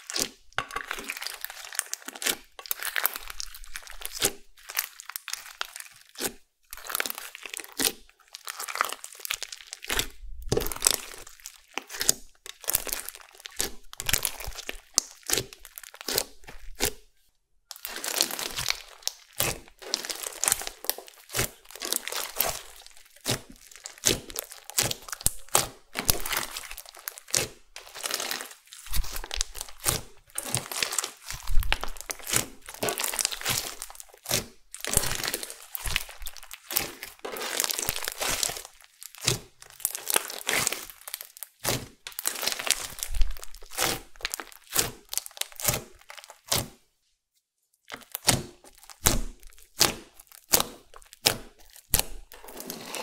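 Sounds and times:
slime squeezed by hand: 17.8s - 46.8s.

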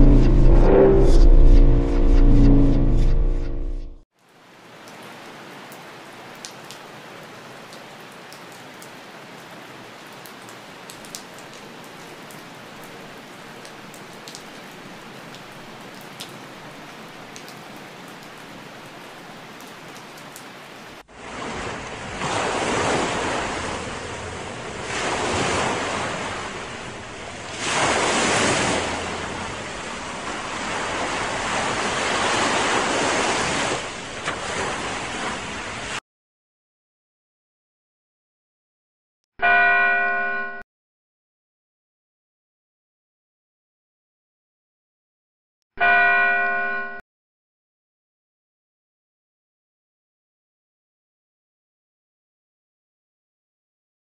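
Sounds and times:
rushing water like surf: 4.2s - 36.0s.

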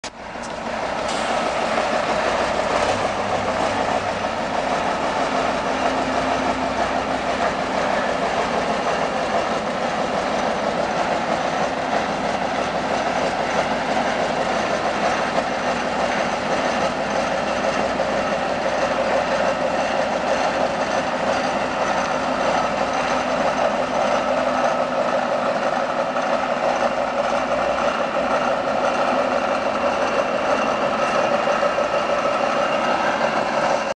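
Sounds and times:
truck diesel engine running: 0.0s - 33.9s.

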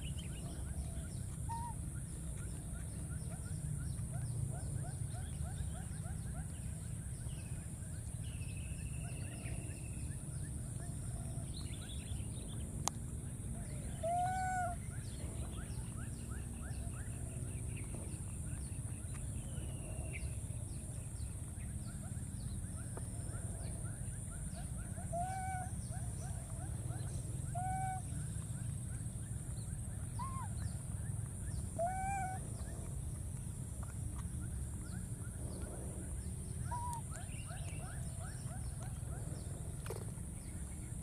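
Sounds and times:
baby macaques coo calls: 31.8s - 32.4s.

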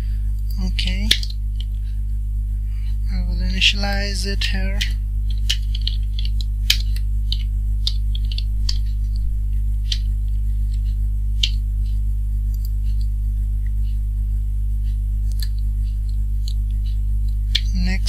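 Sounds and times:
electrical mains hum: 0.0s - 18.0s
keyboard and mouse clicks: 4.8s - 9.3s.

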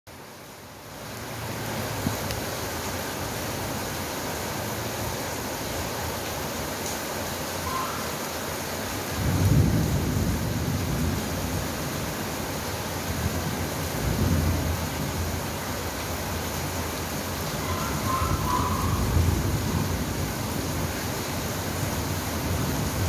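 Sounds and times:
rain falling: 0.1s - 23.0s
thunder rumbling: 9.1s - 15.7s, 17.3s - 23.0s.

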